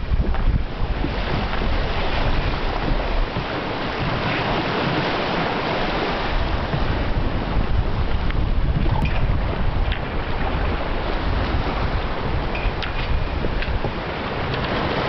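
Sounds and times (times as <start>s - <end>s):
water rushing past hull: 0.0s - 15.0s
wind buffeting microphone: 0.0s - 15.0s.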